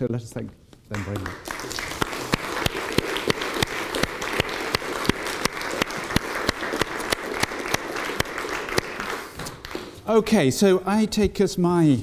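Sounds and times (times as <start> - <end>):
audience applauding: 0.9 - 10.1.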